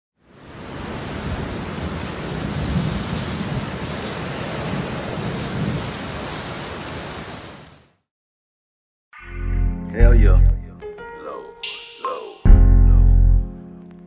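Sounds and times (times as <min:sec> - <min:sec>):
steady rain: 0:00.2 - 0:08.0
low rolling thunder: 0:00.8 - 0:06.3.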